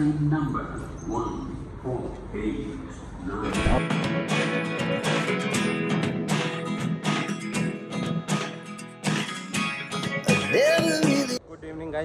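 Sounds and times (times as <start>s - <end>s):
strummed guitar music: 3.5s - 11.4s.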